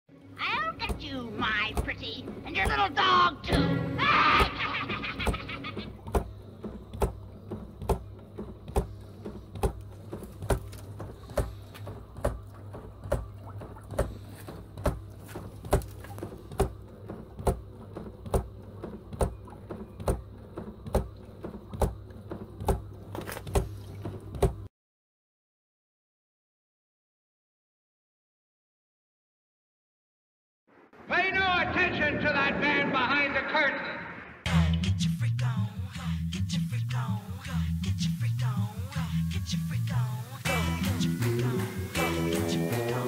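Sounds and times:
steady low motor hum: 0.1 - 24.7
mechanism knocking: 0.7 - 3.8, 5.2 - 24.7.

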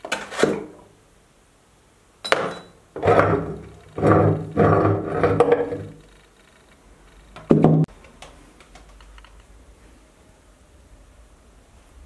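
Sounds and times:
metal parts scraping in barrel: 2.6 - 6.2.

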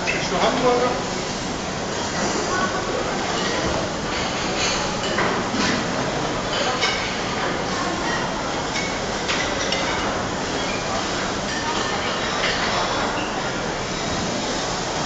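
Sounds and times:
many voices chattering: 0.0 - 15.0
dishes and cutlery clinking: 8.0 - 10.9, 11.5 - 13.3.

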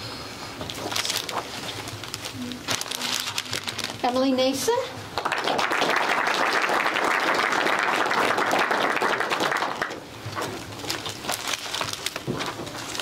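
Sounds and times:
audience applauding: 5.2 - 10.0.

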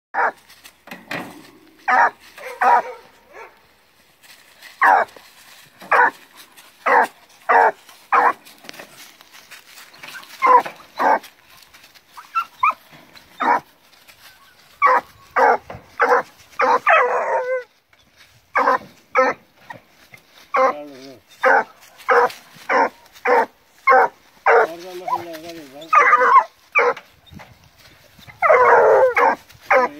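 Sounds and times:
puppies barking: 0.2 - 0.4, 1.8 - 3.7, 4.8 - 5.1, 5.8 - 8.5, 9.8 - 13.7, 14.4 - 17.7, 18.6 - 19.5, 20.5 - 27.1, 28.3 - 29.9
dog baying: 1.4 - 3.6, 4.8 - 5.1, 5.9 - 6.2, 6.8 - 8.4, 10.0 - 11.3, 12.2 - 13.7, 14.8 - 17.7, 18.6 - 19.4, 20.5 - 27.0, 28.4 - 29.9.

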